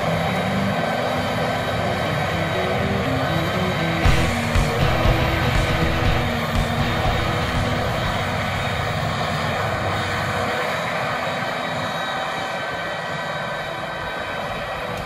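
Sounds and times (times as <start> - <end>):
forage harvester mechanical drone: 0.0 - 15.0.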